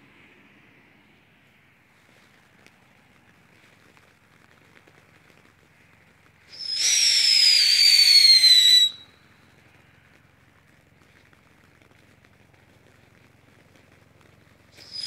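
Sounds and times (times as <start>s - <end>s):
firework fountain crackling: 0.0s - 15.0s
firework whistle sliding down: 6.5s - 9.2s, 14.8s - 15.0s.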